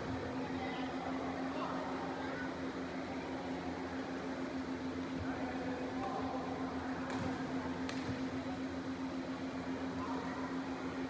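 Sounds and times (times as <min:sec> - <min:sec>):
sports hall hum and hiss: 0:00.0 - 0:11.0
rackets striking shuttlecock: 0:07.1 - 0:08.2.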